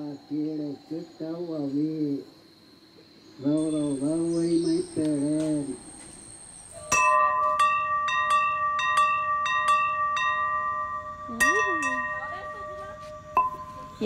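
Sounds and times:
bell-like chime music: 6.9s - 14.0s.

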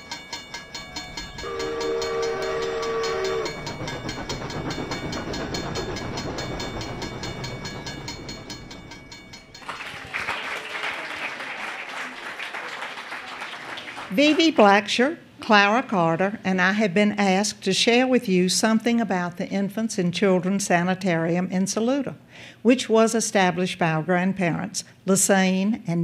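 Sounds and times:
train clattering on rails: 0.0s - 10.1s
train whistle chord: 0.0s - 11.4s.

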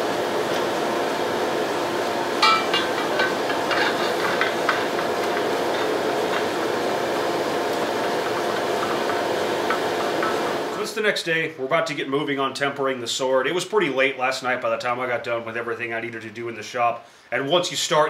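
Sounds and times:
forge fire roaring: 0.0s - 10.8s
steel blade clinking: 2.4s - 4.9s.

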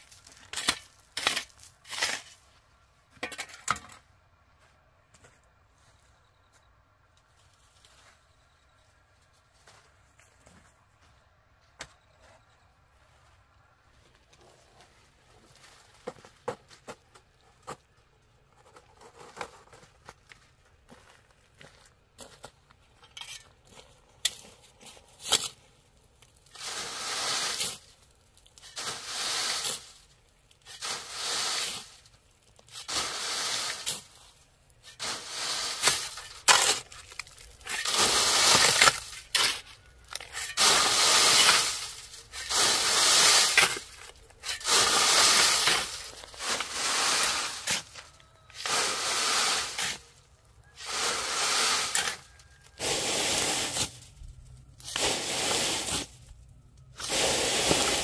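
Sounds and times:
hoe scraping through gravel: 0.0s - 2.5s, 18.5s - 20.2s, 20.9s - 58.0s.

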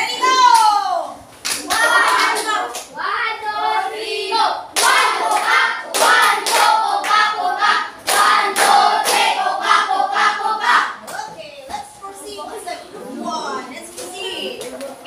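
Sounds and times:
group singing together: 1.7s - 11.0s
sharp hand claps: 4.8s - 7.2s.

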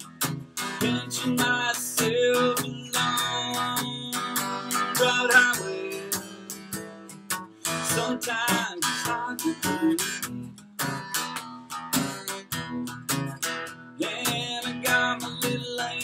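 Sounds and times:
man singing: 0.0s - 10.3s, 14.0s - 16.0s
strummed acoustic guitar: 0.0s - 16.0s.

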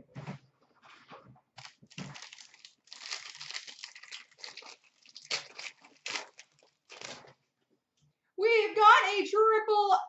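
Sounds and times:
plastic wrapper crinkling and tearing: 1.6s - 7.4s.

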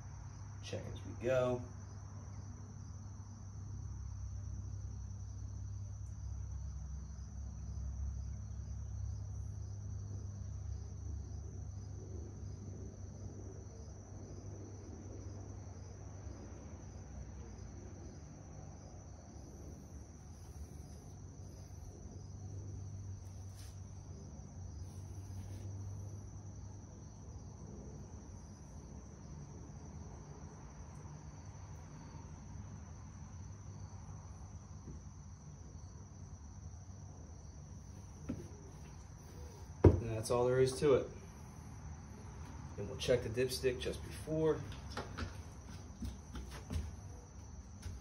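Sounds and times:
insect trill: 0.0s - 48.0s.

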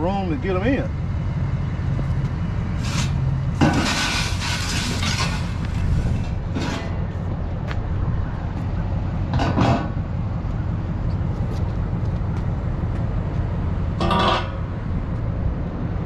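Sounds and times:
low engine rumble: 0.0s - 16.0s
metal clanking and scraping: 2.8s - 7.3s, 9.3s - 10.0s, 13.9s - 14.9s.

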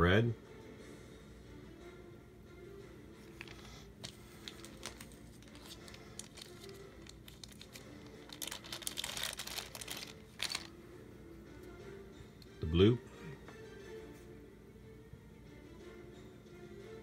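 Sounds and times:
plastic bag crinkling: 3.4s - 10.7s.

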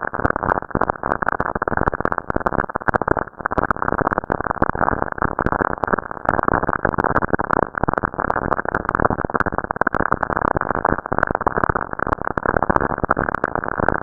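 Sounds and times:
crackling static with sharp clicks: 0.0s - 14.0s.

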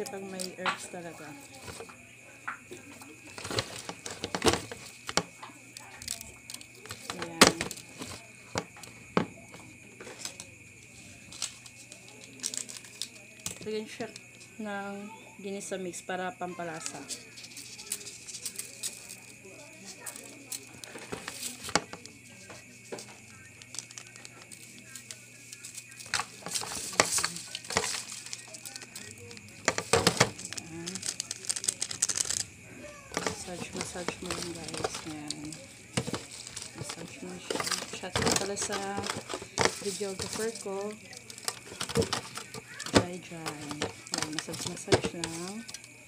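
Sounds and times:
hands rustling and scraping meat: 17.3s - 45.9s.

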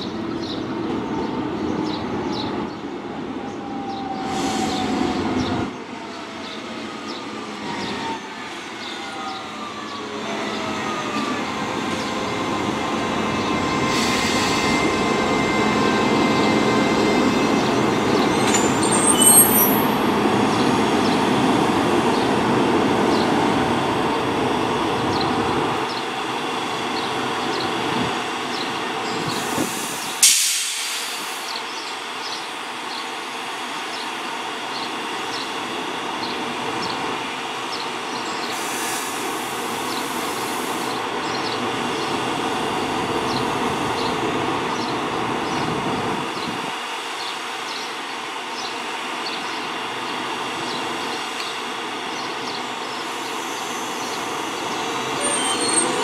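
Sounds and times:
electric train running: 11.4s - 24.1s
high-pitched wheel squeal: 13.4s - 20.0s, 55.2s - 56.0s.

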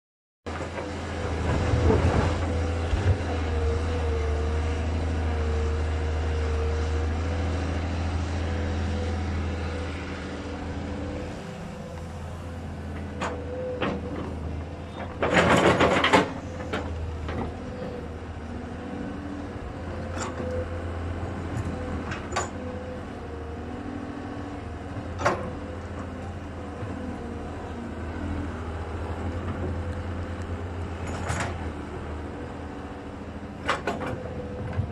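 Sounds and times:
diesel engine under load: 0.5s - 34.9s
hydraulic whine: 8.9s - 34.9s
rattle of earth and stone: 11.2s - 18.8s, 19.6s - 22.9s, 24.9s - 27.9s, 28.7s - 32.2s, 33.5s - 34.9s.

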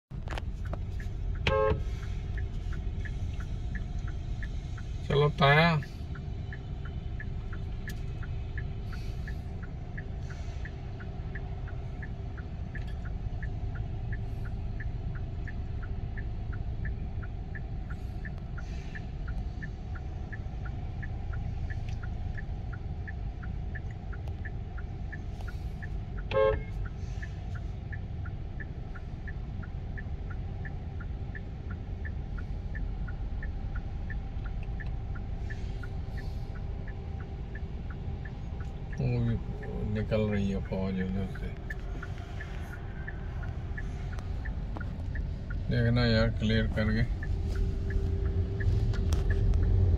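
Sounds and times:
car engine idling: 0.1s - 49.9s
light regular ticking: 0.1s - 49.9s
car horn honk: 1.4s - 1.9s, 26.3s - 26.7s.

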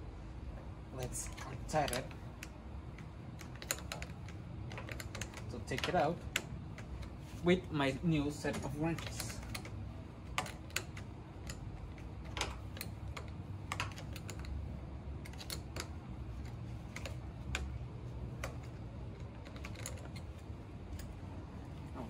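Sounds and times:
low steady hum: 0.0s - 22.0s
wrench clicking on metal nut: 1.4s - 7.1s.

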